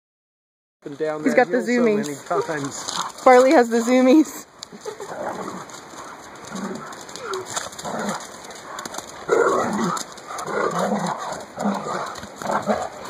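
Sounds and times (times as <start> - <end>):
dogs growling while play-fighting: 2.3 - 3.3, 4.9 - 13.0.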